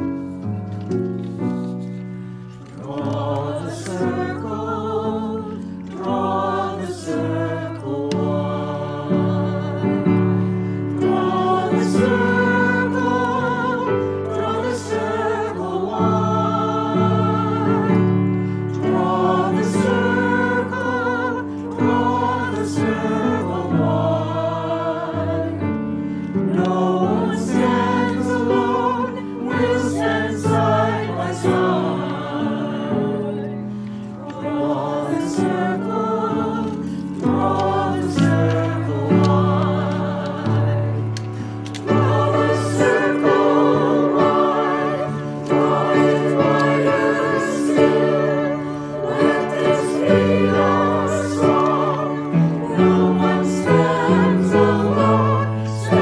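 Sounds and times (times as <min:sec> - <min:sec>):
piano accompaniment: 0:00.0 - 0:56.0
mixed choir singing a hymn: 0:02.6 - 0:56.0.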